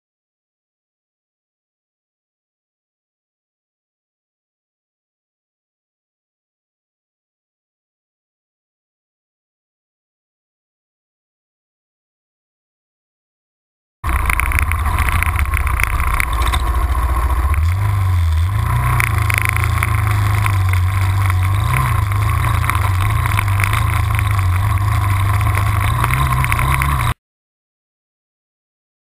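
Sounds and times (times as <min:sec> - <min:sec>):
quad bike engine revving: 0:14.1 - 0:27.2.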